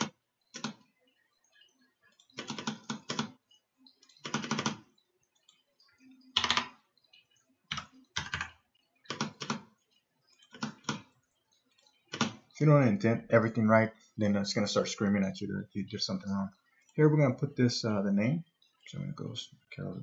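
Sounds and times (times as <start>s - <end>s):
computer keyboard typing: 0.0s - 0.9s, 1.5s - 12.5s.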